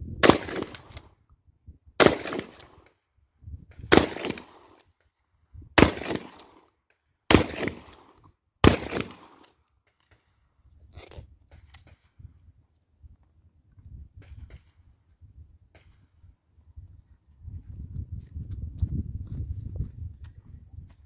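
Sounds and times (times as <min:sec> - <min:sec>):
shotgun shots: 0:00.2 - 0:01.0, 0:02.0 - 0:02.8, 0:03.9 - 0:04.7, 0:05.8 - 0:06.6, 0:07.3 - 0:09.4.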